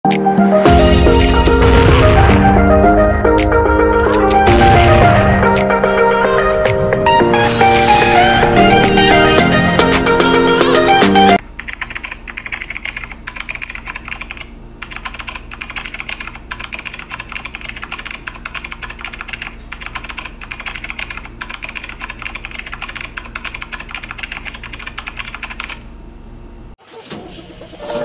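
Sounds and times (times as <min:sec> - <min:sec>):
keyboard typing: 0:03.9 - 0:04.7, 0:11.6 - 0:25.8.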